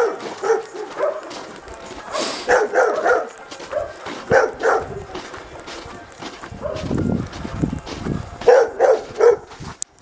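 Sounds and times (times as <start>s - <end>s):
dog barking: 0.0s - 1.4s, 2.1s - 5.0s, 6.6s - 6.9s, 8.4s - 9.5s.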